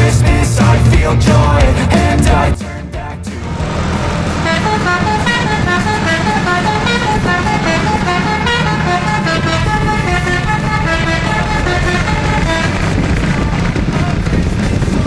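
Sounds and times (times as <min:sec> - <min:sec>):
bus engine rumble: 0:00.0 - 0:15.0
musical air horn tune: 0:04.3 - 0:13.0.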